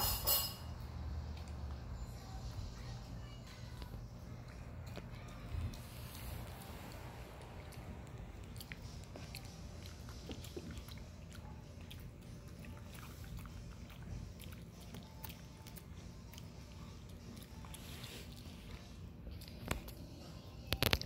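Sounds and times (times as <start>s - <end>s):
dog chewing and smacking: 4.2s - 21.0s.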